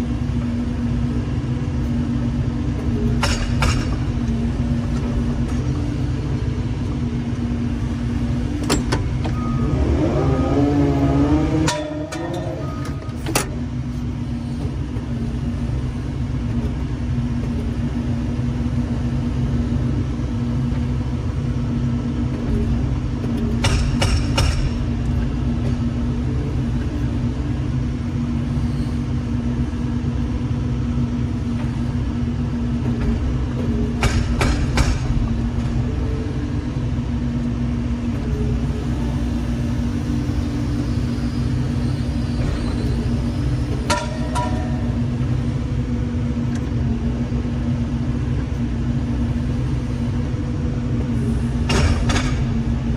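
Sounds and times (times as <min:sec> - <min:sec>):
diesel engine running: 0:00.0 - 0:52.9
hydraulic hum: 0:00.0 - 0:52.9.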